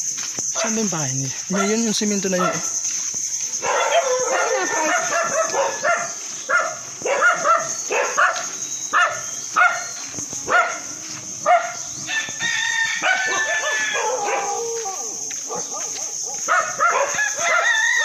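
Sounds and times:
dogs barking: 0.5s - 0.9s, 1.5s - 2.8s, 3.5s - 12.2s, 12.8s - 18.0s
dog drawn-out howl: 3.6s - 8.3s, 13.0s - 18.0s.

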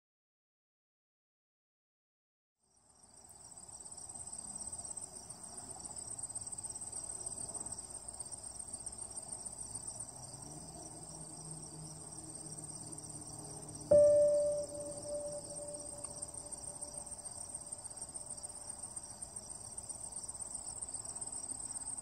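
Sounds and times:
insects trilling: 5.9s - 22.0s
faint low rumble: 13.9s - 17.0s.

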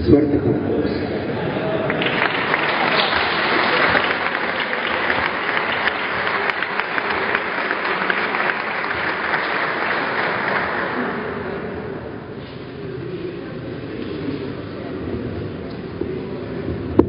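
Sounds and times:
crowd applauding: 1.2s - 12.2s.

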